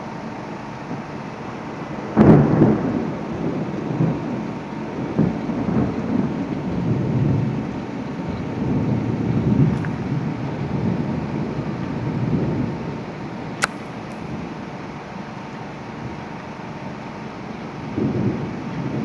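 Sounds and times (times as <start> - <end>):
heavy rain hiss: 0.0 - 19.0
thunder crack and rumbling: 1.9 - 13.2, 17.8 - 19.0.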